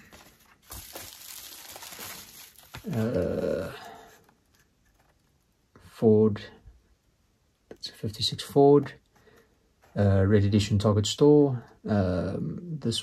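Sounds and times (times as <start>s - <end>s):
packaging rustling and crinkling: 0.0s - 5.2s
person humming: 2.8s - 3.8s.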